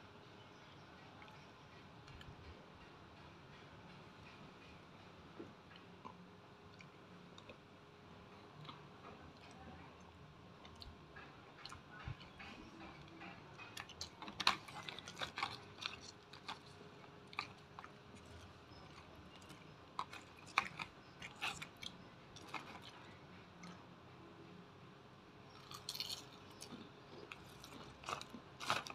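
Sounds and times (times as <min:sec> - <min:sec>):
crunchy chewing: 0:05.7 - 0:23.8, 0:25.5 - 0:28.9.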